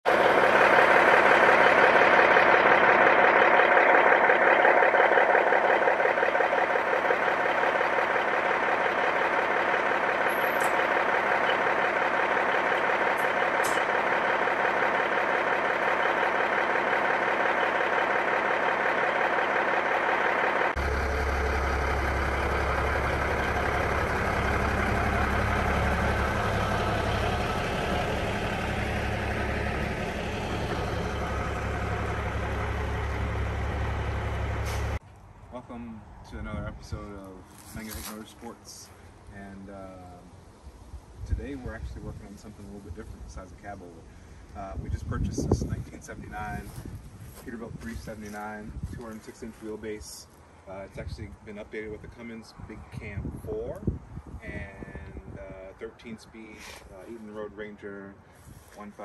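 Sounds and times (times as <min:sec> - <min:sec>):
diesel truck engine idling: 0:00.0 - 0:35.0.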